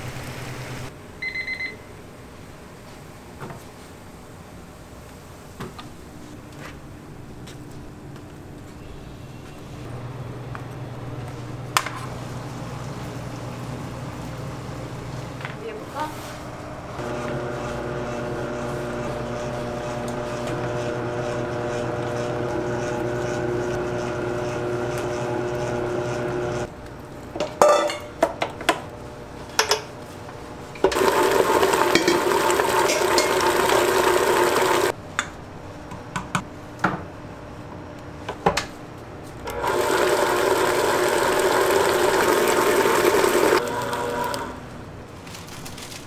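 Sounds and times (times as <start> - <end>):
kitchen machine motor running: 16.8 - 26.7, 30.8 - 34.9, 39.5 - 44.8
utensils knocking and clattering: 31.8 - 33.4.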